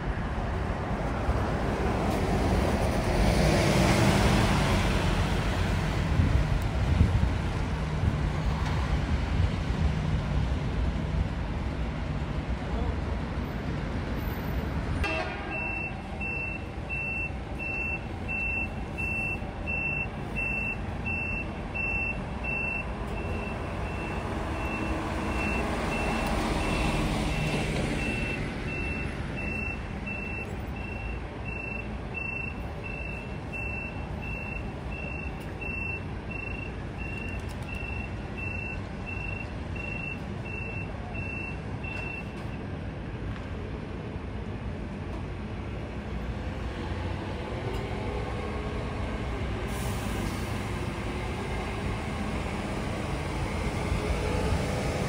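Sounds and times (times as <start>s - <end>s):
diesel engine rumble: 0.0s - 55.0s
rush of vehicle noise: 0.0s - 55.0s
reversing alarm beeping: 15.0s - 42.6s.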